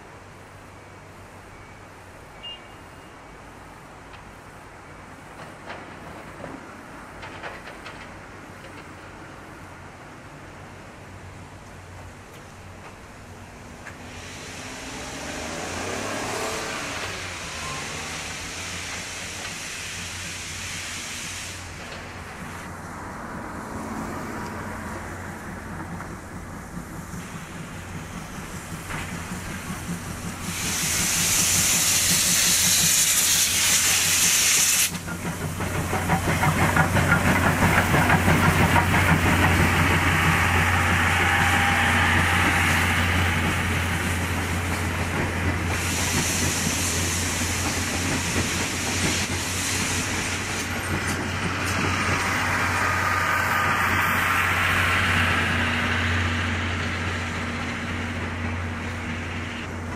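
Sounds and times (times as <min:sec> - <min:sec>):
steam hissing: 0:13.5 - 0:22.8, 0:23.7 - 0:59.9
loud steam venting burst: 0:14.0 - 0:22.7, 0:26.4 - 0:59.6
locomotive exhaust chuffs: 0:25.4 - 0:59.9.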